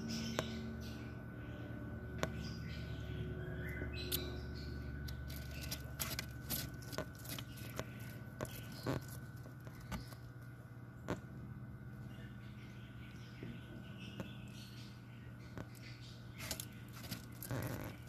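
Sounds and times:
steady low hum: 0:00.0 - 0:18.0
lizard chewing leaves: 0:05.1 - 0:10.2, 0:16.3 - 0:18.0.

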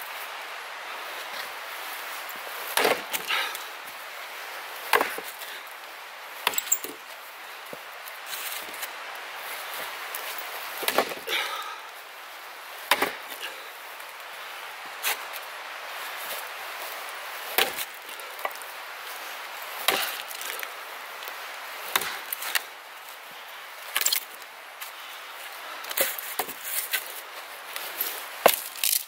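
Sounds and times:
axe chopping wood: 0:02.7 - 0:03.3, 0:04.9 - 0:05.3, 0:10.8 - 0:11.2, 0:12.9 - 0:13.3, 0:17.6 - 0:18.6, 0:19.8 - 0:20.5, 0:21.9 - 0:22.6, 0:26.0 - 0:26.6.

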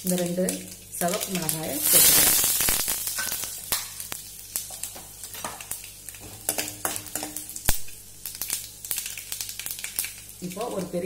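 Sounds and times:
spices crackling in hot oil: 0:00.0 - 0:11.0
spoon knocking against pan: 0:06.2 - 0:07.5.

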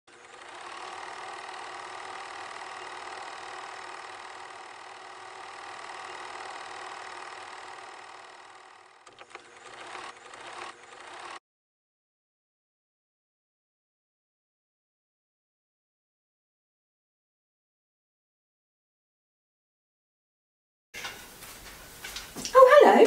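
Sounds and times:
film projector clattering: 0:00.1 - 0:11.4.

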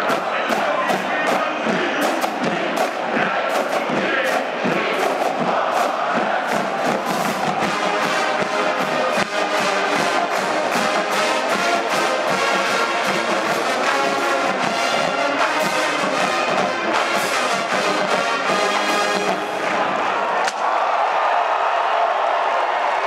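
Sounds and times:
steady drum beat: 0:00.0 - 0:19.6
brass section playing chords: 0:07.2 - 0:19.8.

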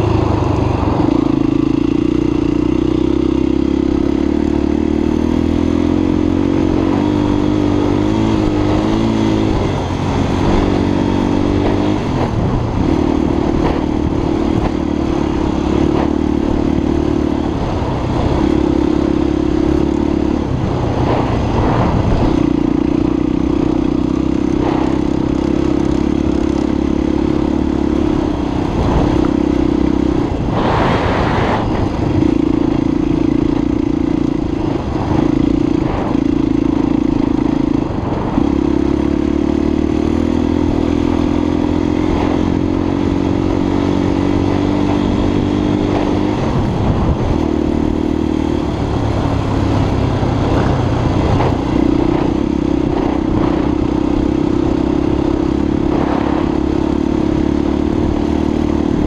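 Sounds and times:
motorcycle engine running: 0:00.0 - 0:59.0
rushing burst of noise: 0:28.7 - 0:38.3.

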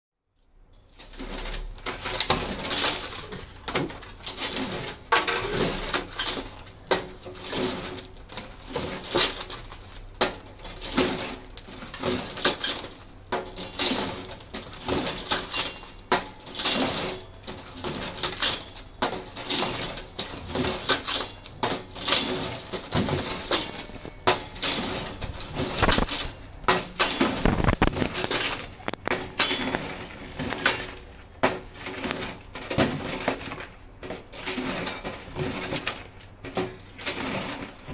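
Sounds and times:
cling film crinkling: 0:16.4 - 0:37.9.

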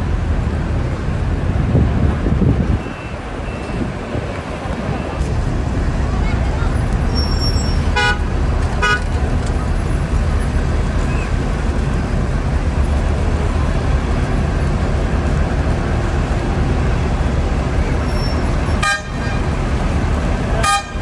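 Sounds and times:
street traffic rumble: 0:00.0 - 0:21.0
vehicle horn toots: 0:07.3 - 0:09.1, 0:18.7 - 0:19.5, 0:20.6 - 0:21.0.

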